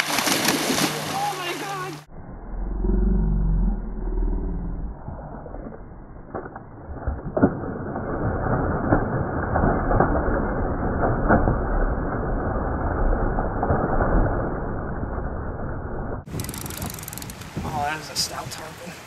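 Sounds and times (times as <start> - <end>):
fish smacking water surface: 0.0 - 1.2
fish splashing in water: 0.0 - 2.0.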